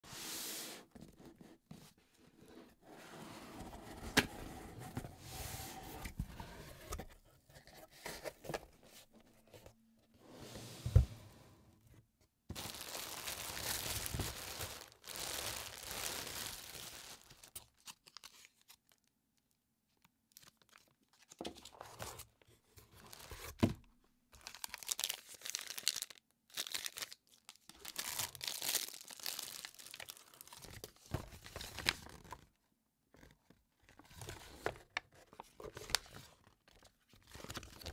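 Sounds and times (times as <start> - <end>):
plastic wrappers crinkling and tearing: 12.5 - 19.1, 24.4 - 30.8.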